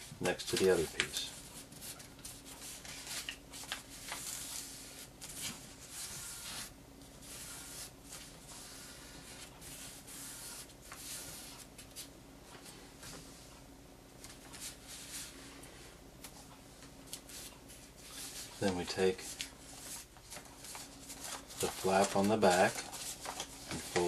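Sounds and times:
paper rustling and crinkling: 0.2 - 6.7, 17.1 - 24.0.

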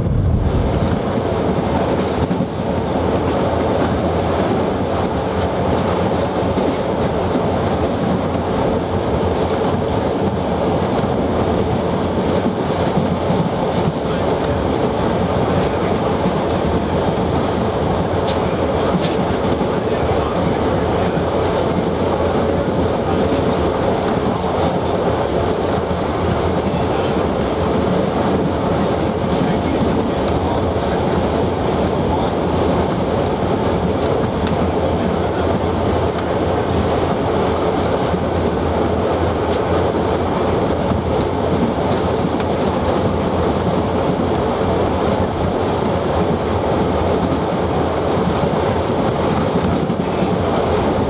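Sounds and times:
diesel engine drone: 0.0 - 51.0
train wheels on rails: 0.0 - 51.0.

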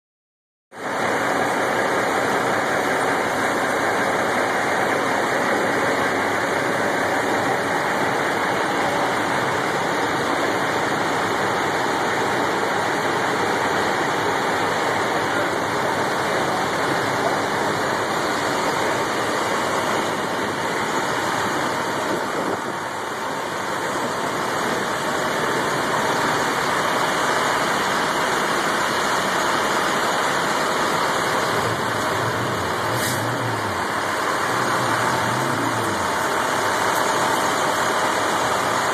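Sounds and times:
tow trucks idling: 0.8 - 38.9.

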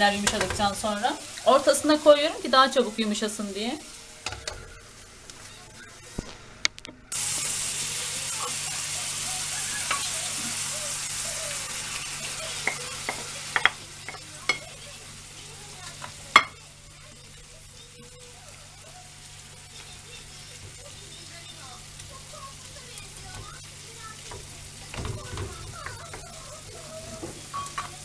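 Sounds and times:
food sizzling in a frying pan: 0.0 - 28.0
spatula clacking against pan: 12.5 - 14.8.

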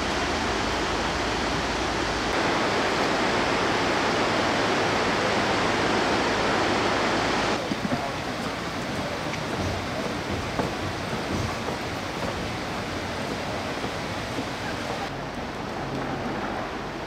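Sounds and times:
river rapids rushing: 0.0 - 17.0.

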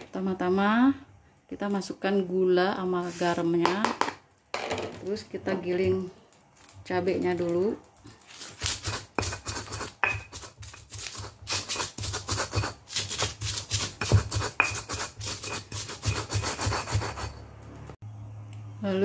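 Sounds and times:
stone pestle grinding in mortar: 8.3 - 17.4.

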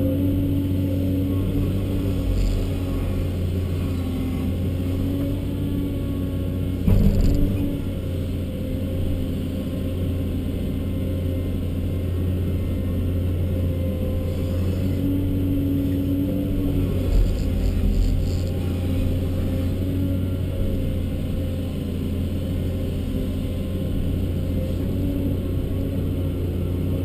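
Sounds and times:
diesel engine running: 0.0 - 27.0
hydraulic whine: 12.1 - 26.7.

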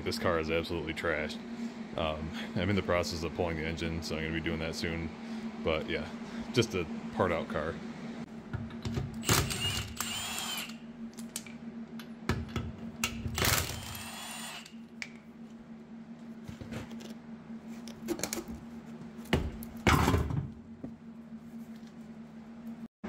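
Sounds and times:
impact wrench spinning lug nuts: 9.2 - 10.8, 13.3 - 14.8.

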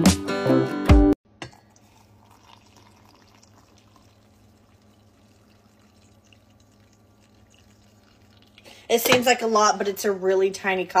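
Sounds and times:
coffee trickling into metal tumbler: 1.4 - 9.3.

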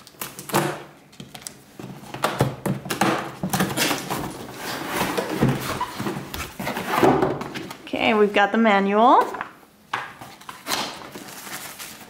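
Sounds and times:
cardboard scraping and rustling: 3.4 - 7.8.

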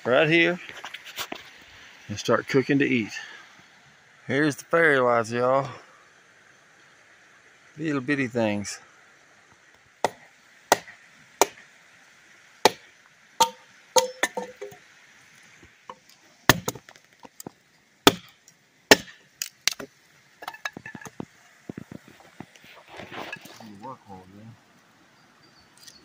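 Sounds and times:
hatchet chopping firewood: 10.0 - 11.7, 12.6 - 14.8, 15.9 - 21.2.

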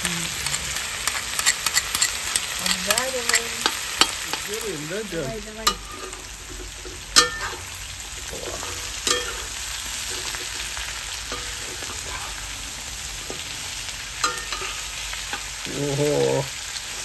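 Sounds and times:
meat and onions sizzling in a pan: 0.0 - 17.0
spatula clacking on pan: 1.0 - 4.6, 7.2 - 7.6, 9.0 - 9.5, 14.2 - 15.5.

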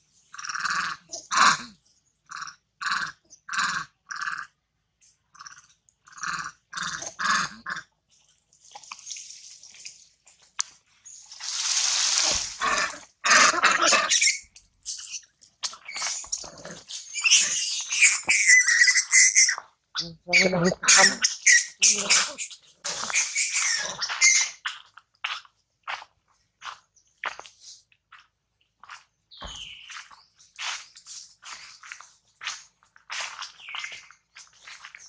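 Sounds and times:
monkeys barking calls: 0.3 - 4.5, 12.6 - 24.7
monkey squealing screams: 12.2 - 24.7
monkey harsh rasping call: 12.2 - 24.8.

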